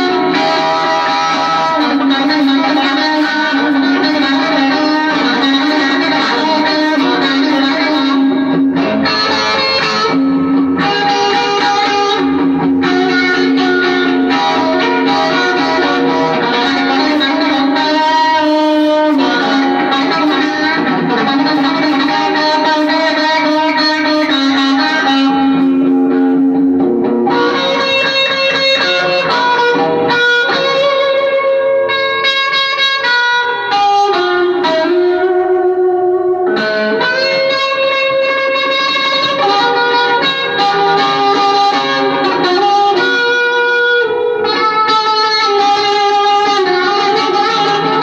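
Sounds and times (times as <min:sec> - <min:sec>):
electric guitar chords: 0:00.0 - 0:48.0.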